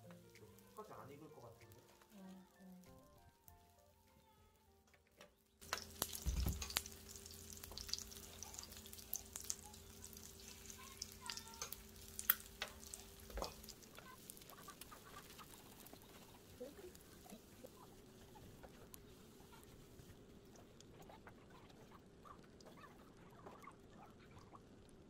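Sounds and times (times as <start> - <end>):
batter sizzling in oil: 0.0 - 3.6, 5.6 - 20.1
utensils clicking on griddle: 5.6 - 17.5.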